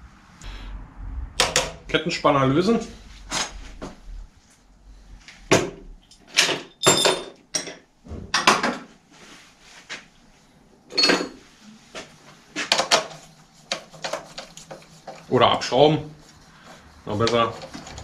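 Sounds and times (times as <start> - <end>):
spanners and metal parts clanking: 6.0 - 7.8, 10.9 - 11.4.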